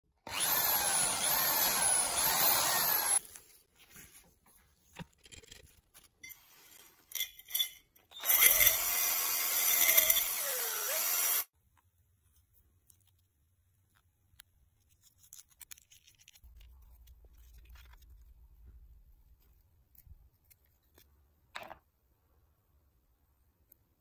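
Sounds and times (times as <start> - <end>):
electric drill boring into metal: 0.2 - 3.2, 8.1 - 11.5.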